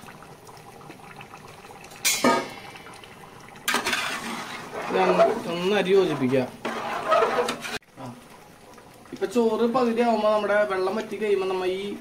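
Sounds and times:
water simmering: 0.0s - 12.0s
metal ladle clattering against pot: 2.0s - 2.7s.

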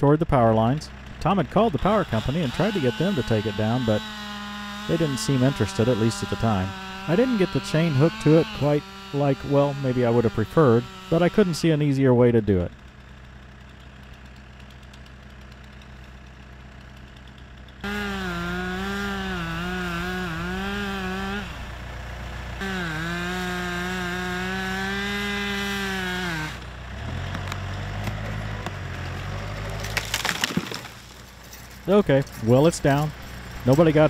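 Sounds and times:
chainsaw cutting wood: 0.4s - 34.0s
tree cracking and splintering: 0.9s - 11.8s, 22.4s - 33.8s.

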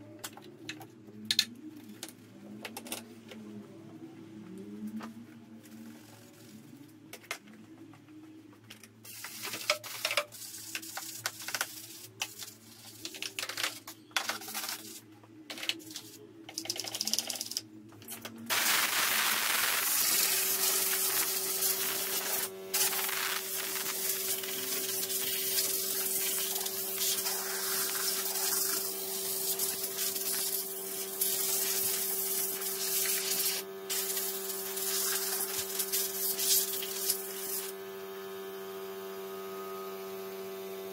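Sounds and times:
steady hum: 3.4s - 39.9s
air blow gun hissing: 18.5s - 30.6s.

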